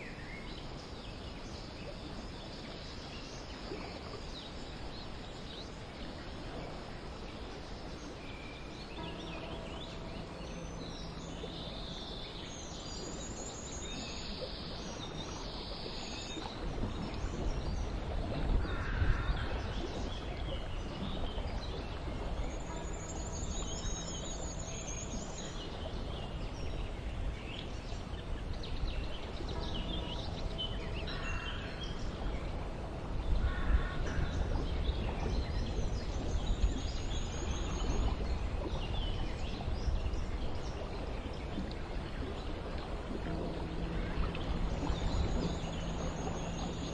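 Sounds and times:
steady background hiss: 0:00.0 - 0:46.9
low rumble: 0:39.8 - 0:46.9.

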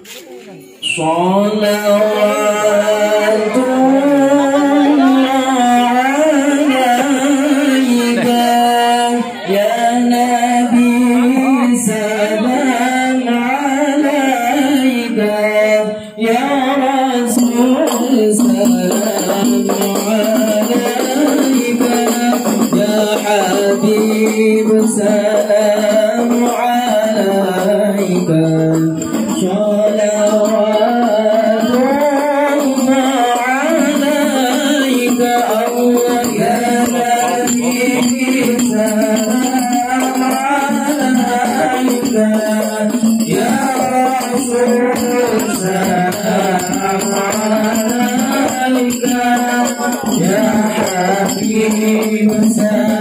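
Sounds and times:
group singing: 0:00.0 - 0:53.0
frame drums beating: 0:17.2 - 0:53.0.

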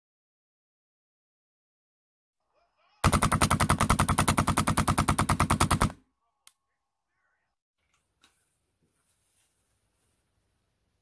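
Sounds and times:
launcher firing rapid shots: 0:03.0 - 0:06.0.

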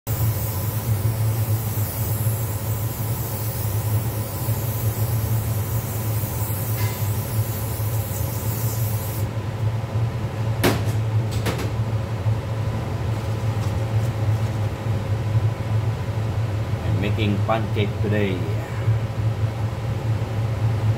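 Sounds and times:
cooking spray hissing: 0:00.1 - 0:09.3
low mechanical hum: 0:00.1 - 0:20.9.

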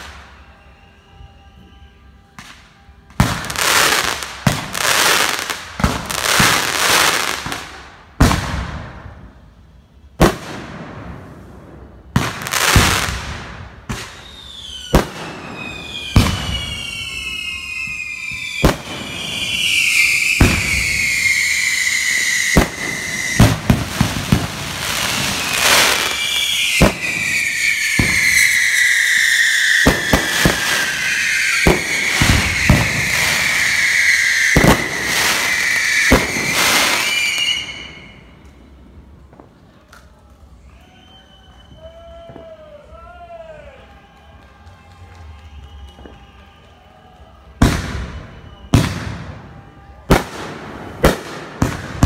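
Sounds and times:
falling firework whistles: 0:00.0 - 0:39.2, 0:40.6 - 0:42.8, 0:45.2 - 0:52.0
fireworks bangs and booms: 0:02.3 - 0:09.5, 0:10.1 - 0:39.8, 0:47.5 - 0:52.0.

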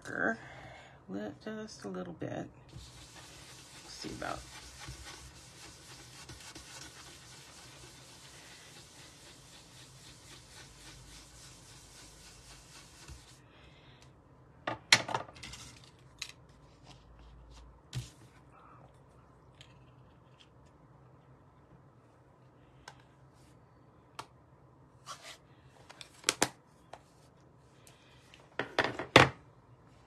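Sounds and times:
tool rubbing on cardstock: 0:02.7 - 0:13.4.

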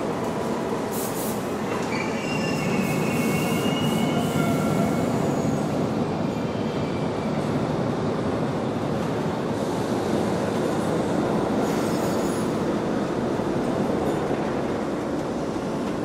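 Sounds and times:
subway train rumble: 0:00.0 - 0:16.0
high wheel squeals: 0:01.8 - 0:05.6.

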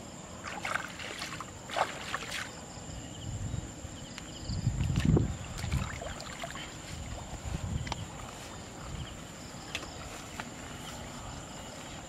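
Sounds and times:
wind rumble on microphone: 0:02.7 - 0:12.0
footsteps through tall grass: 0:05.0 - 0:12.0.

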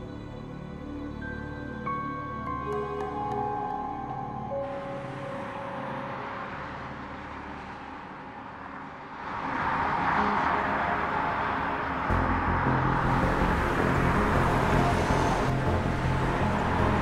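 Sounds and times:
cars driving past: 0:04.1 - 0:17.0.

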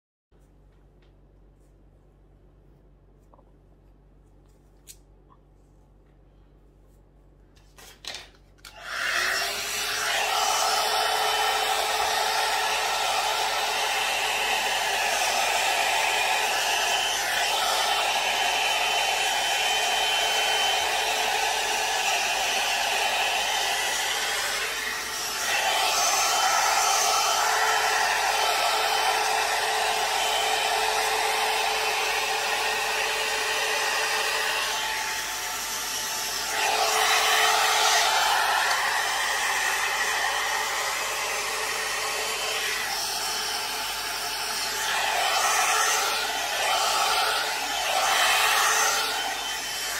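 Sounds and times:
hot air brush blowing: 0:08.7 - 0:49.9.

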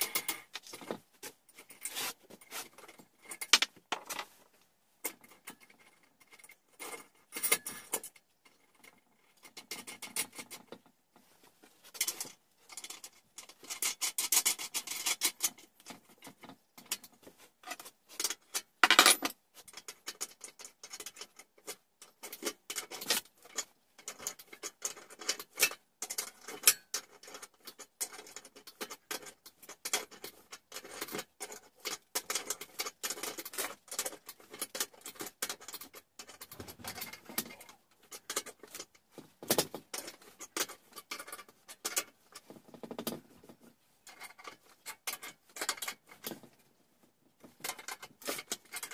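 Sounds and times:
tools clicking and tapping: 0:00.0 - 0:01.9, 0:02.6 - 0:04.3
loud scrape: 0:01.8 - 0:02.8.

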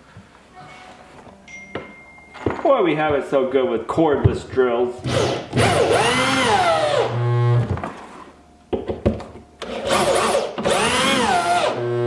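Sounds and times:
electric drill driving screws: 0:05.0 - 0:07.8, 0:09.6 - 0:12.0.

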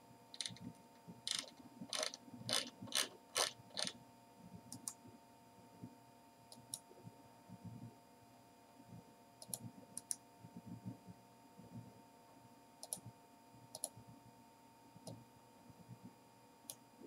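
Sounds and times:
faint steady hum: 0:00.0 - 0:17.0
computer mouse clicking: 0:00.4 - 0:00.7, 0:01.3 - 0:04.0, 0:04.7 - 0:05.0, 0:09.4 - 0:10.2, 0:12.8 - 0:13.1, 0:13.7 - 0:14.0.

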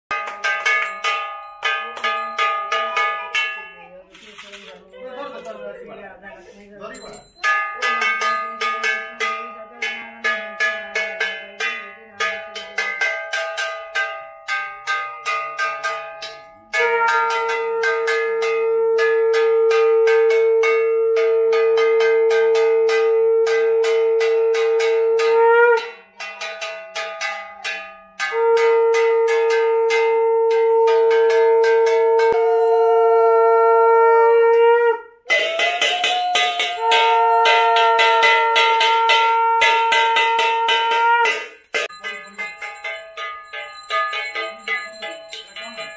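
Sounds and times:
conch shell blasts: 0:12.6 - 0:26.6, 0:27.2 - 0:42.2.

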